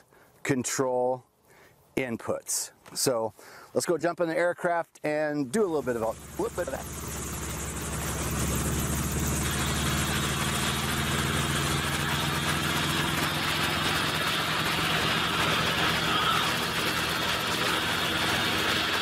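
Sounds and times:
helicopter engine and rotor drone: 5.8s - 19.0s.

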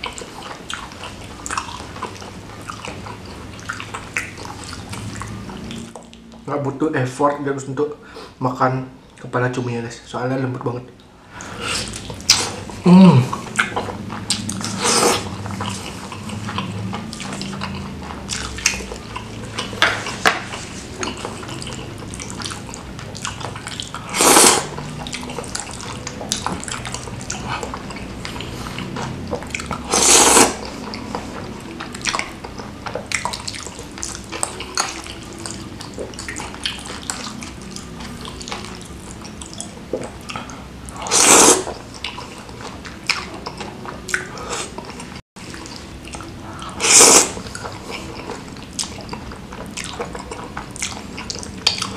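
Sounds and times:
wet chewing and lip-smacking: 0.0s - 6.5s, 11.4s - 51.9s
slurping noodles: 11.4s - 39.2s, 40.3s - 42.4s, 45.5s - 51.9s.

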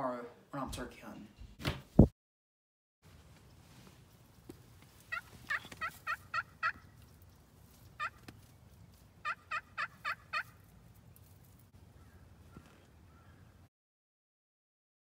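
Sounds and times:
turkey call yelps: 5.0s - 7.1s, 8.0s - 8.3s, 9.2s - 10.7s.

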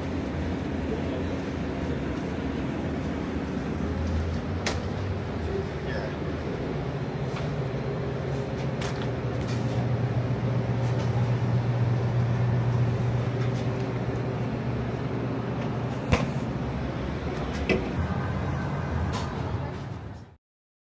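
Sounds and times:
heavy vehicle engine humming: 0.0s - 20.4s.

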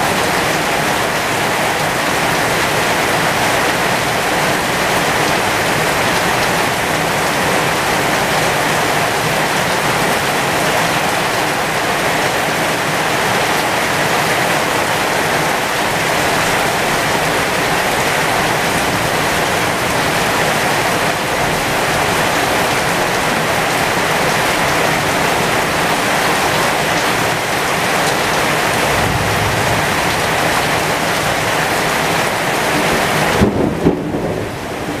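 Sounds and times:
heavy rain on leaves: 0.0s - 35.0s
low thunder rumble: 28.2s - 35.0s
low thumps: 28.8s - 31.4s.

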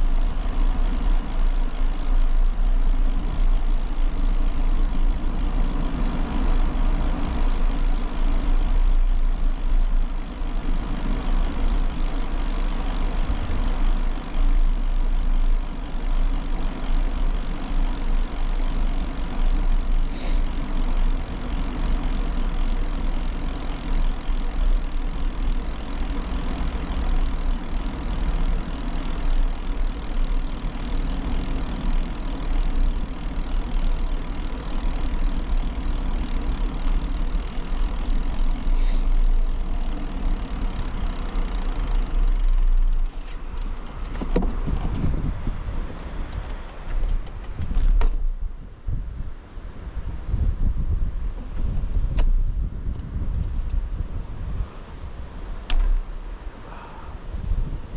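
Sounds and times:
bicycle tyre noise on concrete: 0.0s - 57.9s
wind buffeting microphone: 44.1s - 56.2s, 57.0s - 57.9s.

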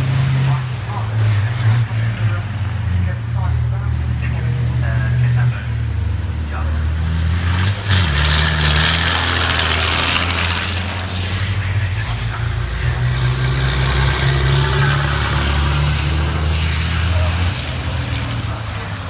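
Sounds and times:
truck engine drone: 0.0s - 19.0s.

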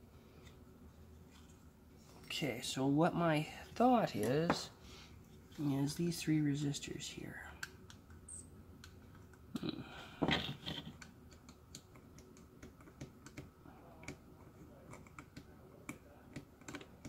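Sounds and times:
small clicks and taps: 10.8s - 17.0s.

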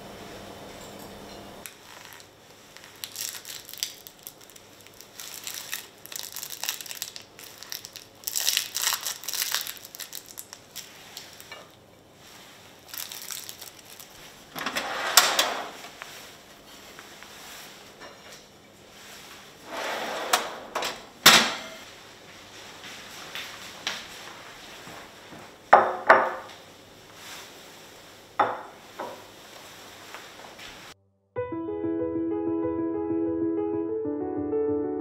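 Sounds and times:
plastic film crinkling: 1.7s - 14.5s
salad greens rustling: 1.7s - 14.5s, 15.7s - 18.0s, 26.5s - 31.0s.

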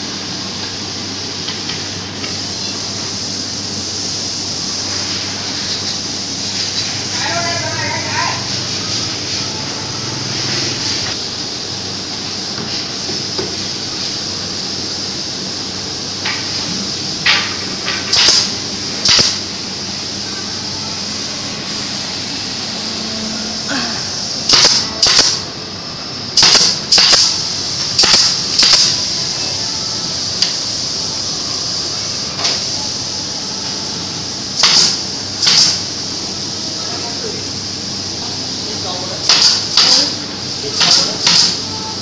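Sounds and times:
air hiss: 0.0s - 7.4s, 8.3s - 42.0s
nail gun shots: 18.1s - 19.4s, 24.5s - 25.4s, 26.4s - 27.3s, 28.0s - 29.0s, 34.6s - 35.8s, 39.3s - 40.0s, 40.8s - 41.6s.

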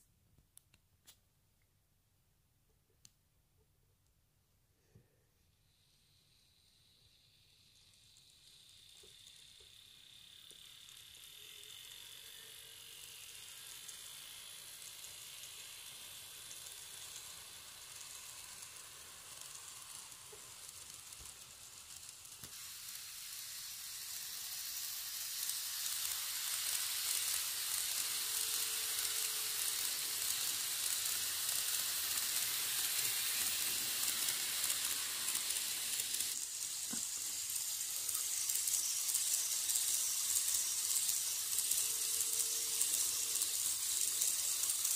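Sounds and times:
model train wheels rolling on rails: 5.4s - 44.9s.

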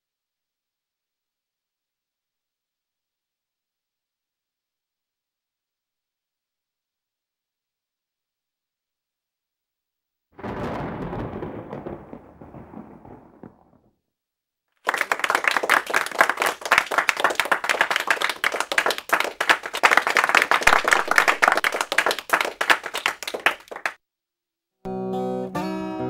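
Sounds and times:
audience applauding: 14.8s - 24.0s.

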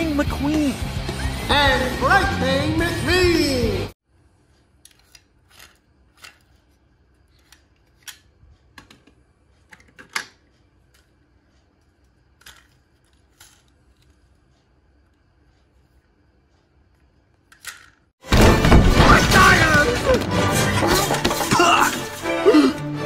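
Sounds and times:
toy cars clicking and clacking: 12.4s - 14.4s, 17.5s - 18.1s.

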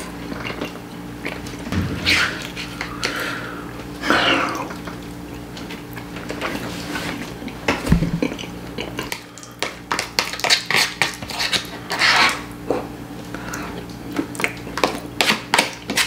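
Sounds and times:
wet eating sounds: 0.0s - 1.7s, 2.4s - 16.0s
low thump: 1.7s - 2.9s.

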